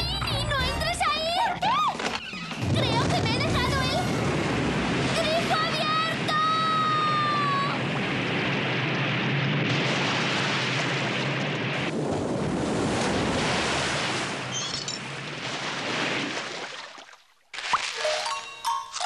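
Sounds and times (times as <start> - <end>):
rush of churning water: 2.6 - 8.4, 9.6 - 18.0.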